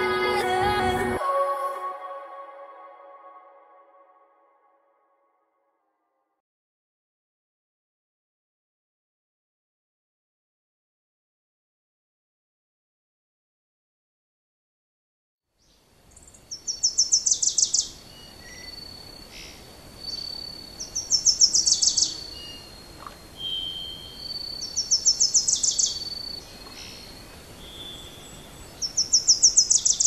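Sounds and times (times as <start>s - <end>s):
high ringing animal calls: 20.0s - 30.0s.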